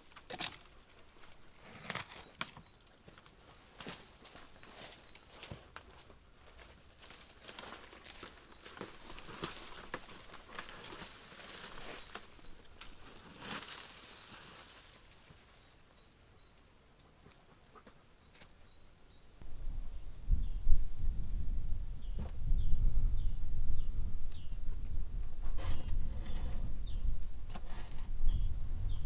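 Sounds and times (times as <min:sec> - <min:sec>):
footsteps crunching on dry leaves: 0:06.6 - 0:15.1
faint bird chirps: 0:15.4 - 0:21.0, 0:21.9 - 0:27.3, 0:28.2 - 0:29.0.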